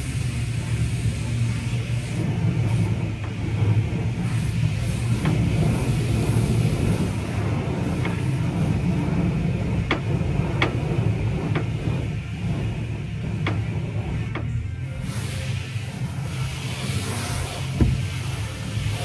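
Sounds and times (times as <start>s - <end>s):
low mechanical rumble with hiss: 0.0s - 19.0s.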